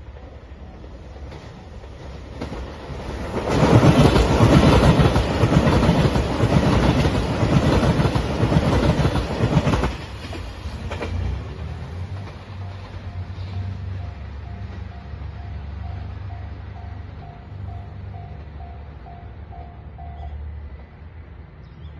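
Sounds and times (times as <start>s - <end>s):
train passing at speed: 0.0s - 21.9s
wheels clattering over rail joints: 1.2s - 14.1s.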